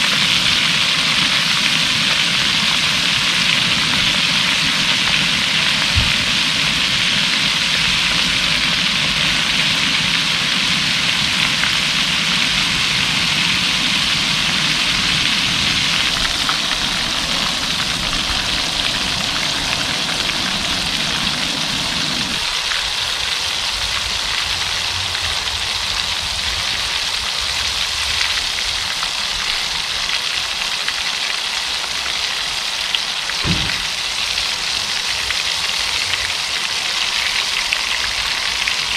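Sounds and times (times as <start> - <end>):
soft knock: 33.4 - 33.9.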